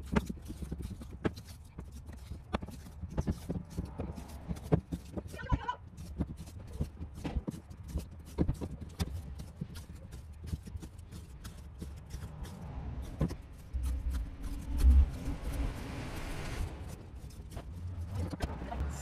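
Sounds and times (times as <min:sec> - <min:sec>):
low rumble: 0:12.3 - 0:19.0.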